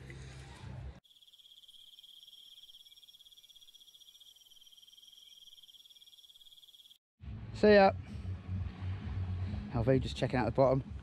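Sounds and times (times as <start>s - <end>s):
insect trilling: 1.0s - 7.0s.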